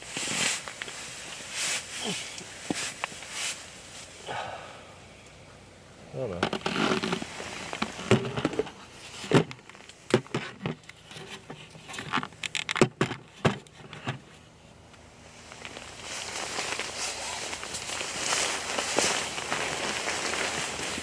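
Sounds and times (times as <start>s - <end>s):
sleeping bag fabric rustling: 15.4s - 21.0s.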